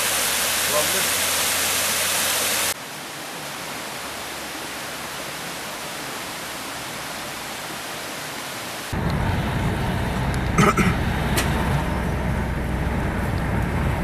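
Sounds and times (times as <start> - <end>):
stream water flowing: 0.0 - 9.0
waterfall rushing over rocks: 0.0 - 9.0.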